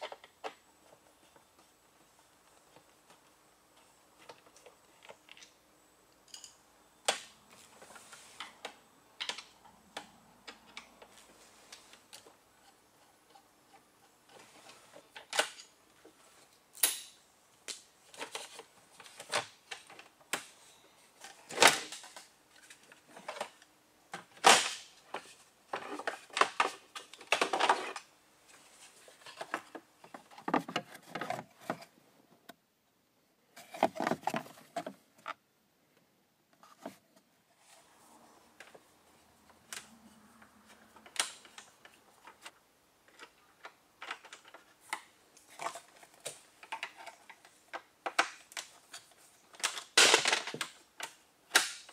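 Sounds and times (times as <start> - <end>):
plastic rattling: 33.6 - 35.4.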